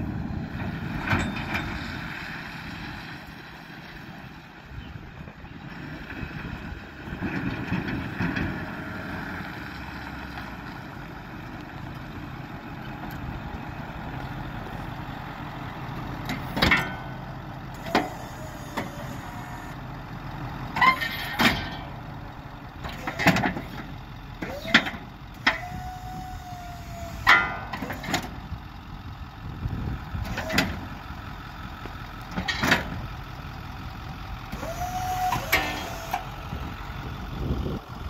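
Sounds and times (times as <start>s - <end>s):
truck engine running: 0.0s - 38.0s
snow plow blade clunks: 0.8s - 2.1s, 16.0s - 19.7s, 20.7s - 28.6s, 31.8s - 33.1s, 34.5s - 36.4s.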